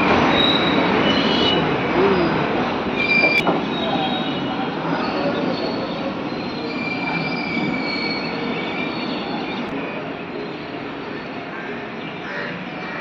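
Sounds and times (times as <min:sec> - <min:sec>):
train wheel squeal: 0:00.0 - 0:01.8, 0:02.9 - 0:09.7.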